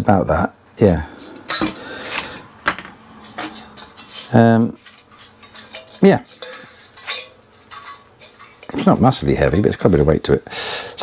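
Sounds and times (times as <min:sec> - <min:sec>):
metallic clinks and rattles: 0:03.2 - 0:08.9.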